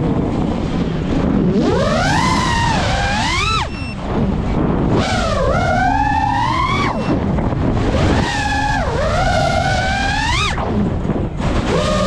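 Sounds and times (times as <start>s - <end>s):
wind rush on microphone: 0.0s - 12.0s
quadcopter motors whining: 1.5s - 4.0s, 4.9s - 10.8s, 11.6s - 12.0s.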